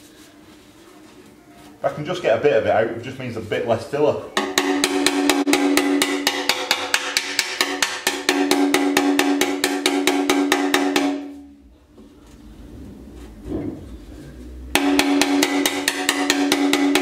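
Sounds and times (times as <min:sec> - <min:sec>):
metal tank ringing: 0:04.3 - 0:11.4, 0:14.7 - 0:17.0
hammer tapping on metal tank: 0:04.4 - 0:11.4, 0:14.7 - 0:17.0.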